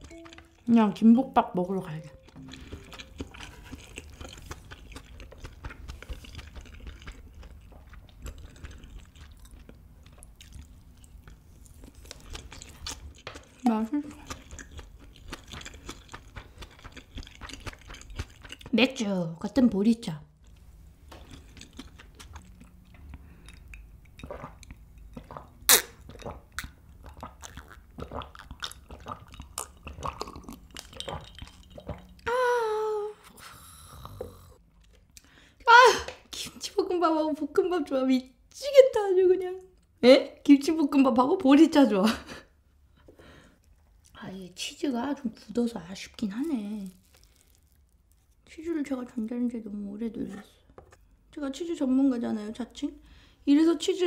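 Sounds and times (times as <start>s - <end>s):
wet chewing mouth clicks: 2.1s - 18.7s, 21.2s - 32.3s
gulping and swallowing: 2.3s - 9.6s, 24.1s - 32.2s.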